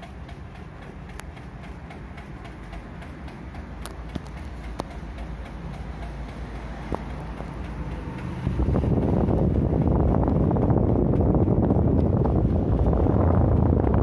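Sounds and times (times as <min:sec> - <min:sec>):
light ticks: 0:00.0 - 0:09.5
stand fan humming: 0:00.0 - 0:14.0
wind buffeting microphone: 0:06.9 - 0:14.0.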